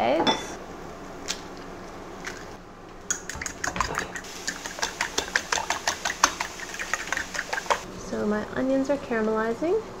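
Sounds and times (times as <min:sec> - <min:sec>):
whisk clicking against bowl: 0:03.1 - 0:07.8.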